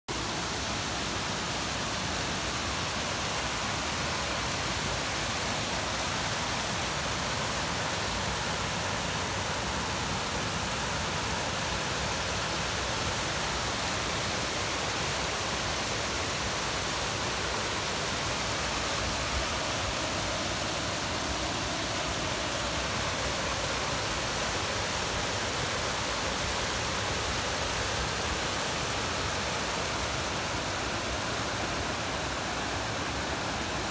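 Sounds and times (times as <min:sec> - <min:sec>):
creek water rushing over rocks: 0:00.1 - 0:33.9
small waterfall spilling: 0:00.1 - 0:33.9.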